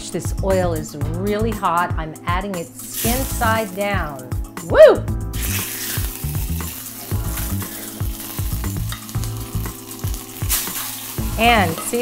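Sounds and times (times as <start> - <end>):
fish sizzling in hot oil: 2.8 - 4.2, 5.3 - 12.0.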